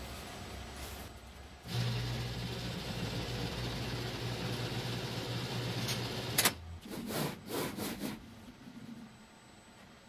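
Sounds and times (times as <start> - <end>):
machine hum: 0.0 - 6.6
short scraping noises: 6.8 - 8.5.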